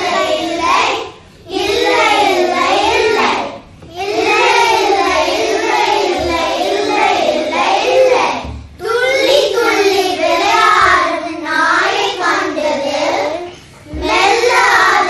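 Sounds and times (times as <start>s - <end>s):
young children singing: 0.0s - 15.0s.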